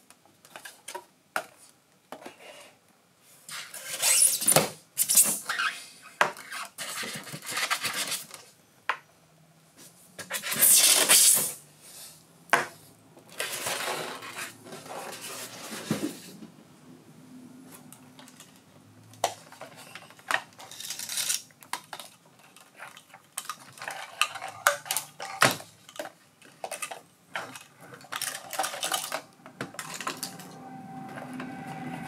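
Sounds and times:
polystyrene scraping and rubbing: 10.3s - 11.6s.

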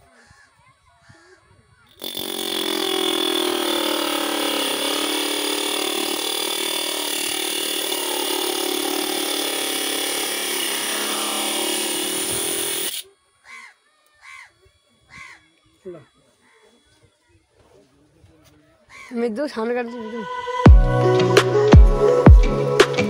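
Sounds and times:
grinder cutting metal rod: 1.9s - 13.1s
crow cawing: 13.4s - 16.9s, 18.9s - 19.3s.

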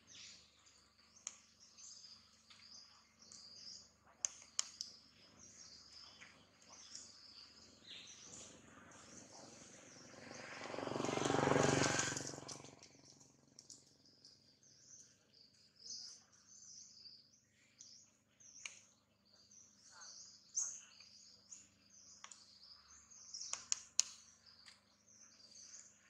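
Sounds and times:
birds chirping: 0.0s - 26.0s
broad rushing noise: 10.0s - 12.7s.

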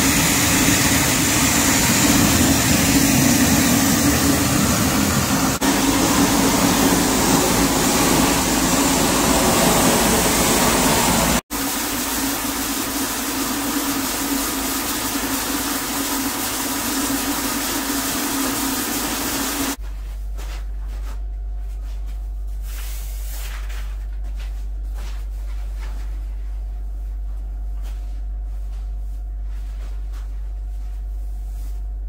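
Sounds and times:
low hum: 0.0s - 11.4s
pumping machinery hissing: 0.0s - 19.8s.

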